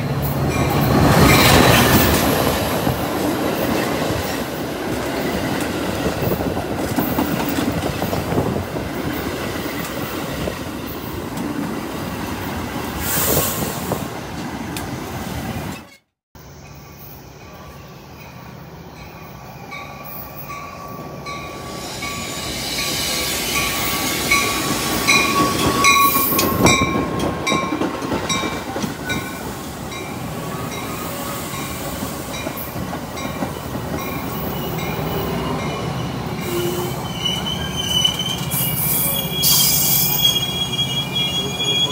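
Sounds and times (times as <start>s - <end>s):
train pulling in: 0.0s - 41.9s
wheels squealing: 34.2s - 41.9s.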